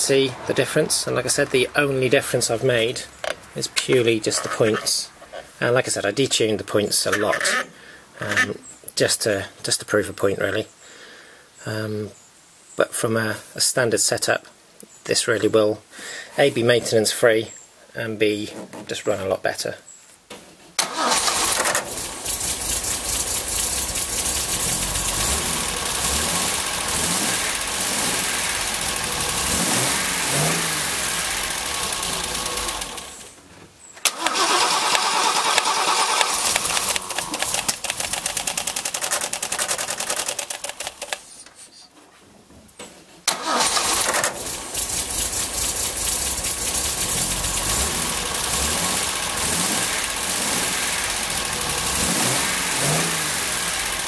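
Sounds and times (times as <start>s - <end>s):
car engine running smoothly: 21.1s - 33.2s, 43.9s - 54.0s
car engine running unevenly: 21.8s - 33.1s, 44.4s - 54.0s.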